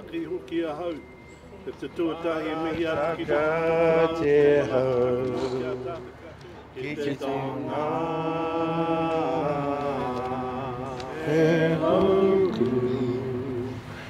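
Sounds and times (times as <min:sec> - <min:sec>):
man chanting a prayer: 0:01.9 - 0:11.3.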